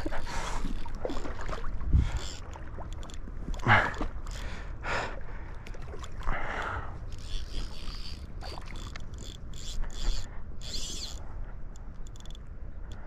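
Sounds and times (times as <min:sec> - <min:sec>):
water splashing in river: 0:00.0 - 0:10.2.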